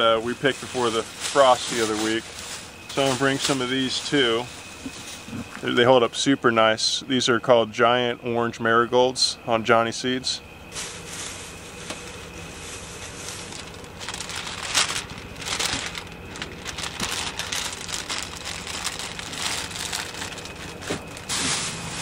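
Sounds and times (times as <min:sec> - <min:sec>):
plastic bags rustling: 0:00.0 - 0:05.4, 0:10.7 - 0:22.0.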